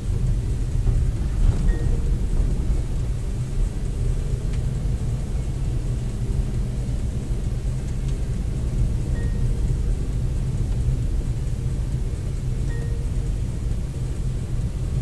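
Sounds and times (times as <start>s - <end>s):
car driving rumble: 0.0s - 15.0s.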